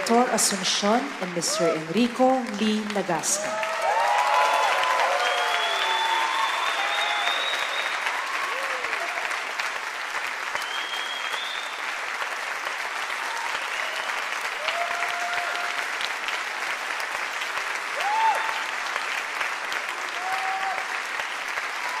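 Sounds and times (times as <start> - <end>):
audience applauding: 0.0 - 22.0
scattered cheers: 3.4 - 9.6, 13.1 - 16.0, 17.9 - 18.8, 19.9 - 21.0, 21.7 - 22.0.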